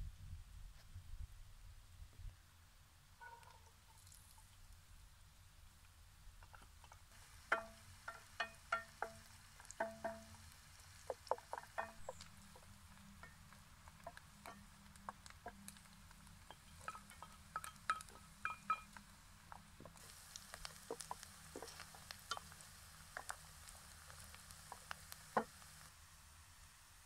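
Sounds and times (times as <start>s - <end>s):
spatula scraping pot: 6.6s - 19.0s
pot ringing from knocks: 7.5s - 10.4s, 11.4s - 14.8s, 16.4s - 19.0s.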